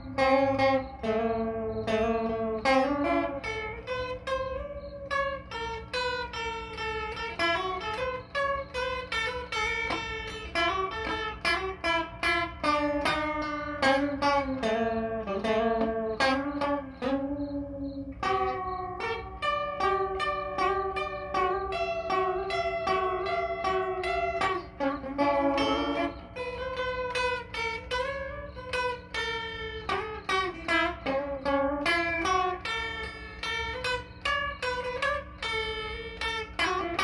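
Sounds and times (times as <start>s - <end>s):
electric guitar with chorus effect: 0.0s - 37.0s.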